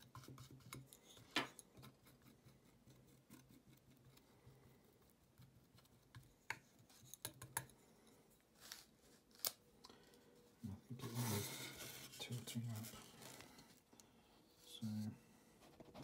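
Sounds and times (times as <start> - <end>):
palette knife scraping paint: 0.0 - 7.8.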